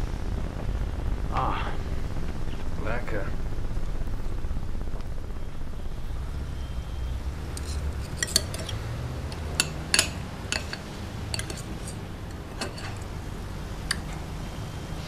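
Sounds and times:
low steady hum: 0:00.0 - 0:15.0
cutlery clinking on a plate: 0:07.6 - 0:13.1, 0:13.8 - 0:14.3.

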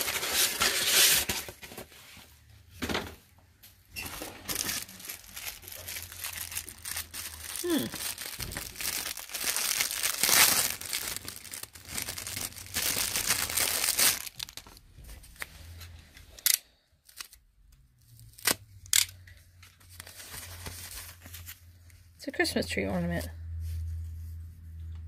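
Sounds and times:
plastic bag crinkling: 0:04.0 - 0:14.9.

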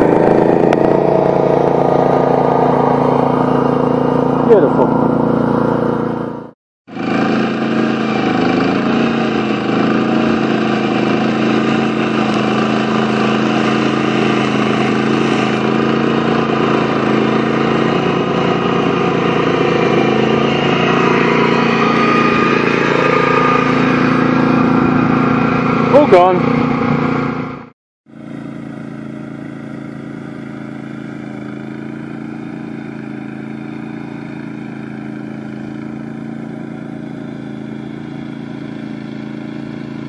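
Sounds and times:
tractor engine running: 0:00.0 - 0:40.0.

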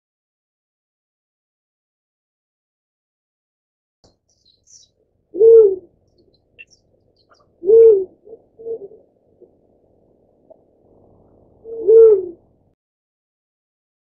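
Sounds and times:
dove hooting coos: 0:05.3 - 0:06.0, 0:06.6 - 0:09.6, 0:10.5 - 0:12.5.

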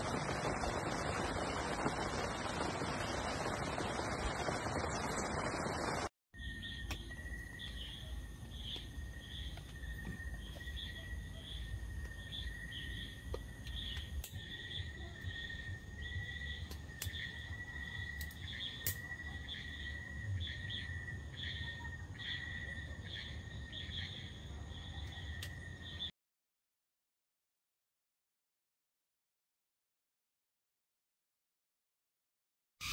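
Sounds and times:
wind noise: 0:00.0 - 0:06.1
cricket trill: 0:06.4 - 0:26.1.

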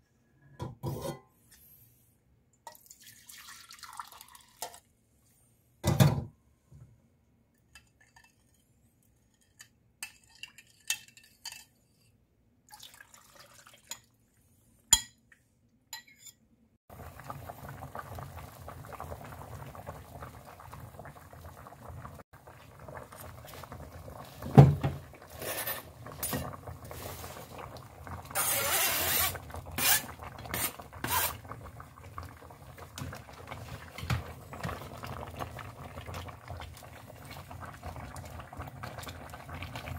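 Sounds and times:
stew bubbling in a pan: 0:16.9 - 0:39.9
vegetables scraped into pan: 0:28.4 - 0:31.4.

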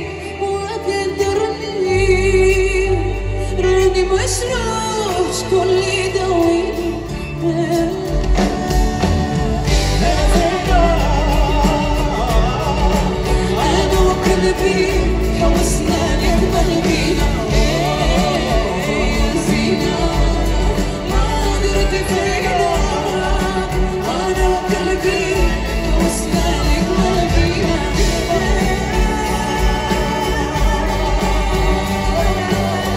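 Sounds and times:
keyboard: 0:00.0 - 0:32.9
person singing: 0:00.0 - 0:32.9
strings: 0:00.0 - 0:32.9
drum kit beat: 0:07.8 - 0:32.9.

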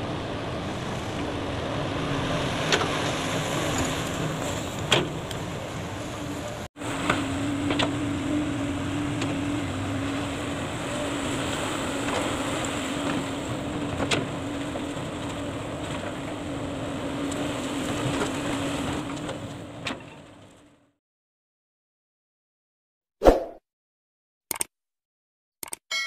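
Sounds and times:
excavator diesel engine running: 0:00.0 - 0:19.8.

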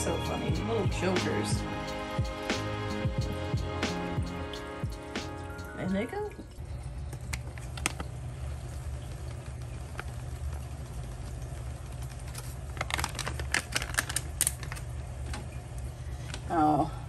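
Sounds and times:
powdered food pouring: 0:12.1 - 0:14.8.

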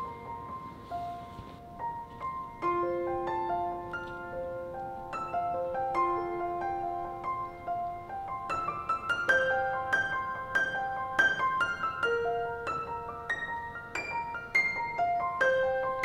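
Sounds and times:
piano melody: 0:00.0 - 0:16.0.

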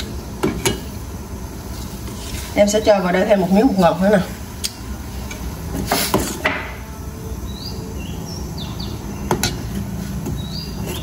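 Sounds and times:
stove low rumble: 0:00.0 - 0:11.0
bird chirps: 0:07.4 - 0:09.5, 0:10.3 - 0:11.0.

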